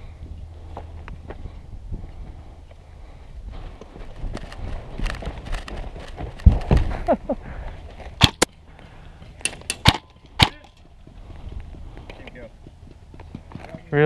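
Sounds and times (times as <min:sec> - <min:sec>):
airsoft rifle shots: 0:08.2 - 0:08.5, 0:09.4 - 0:10.7.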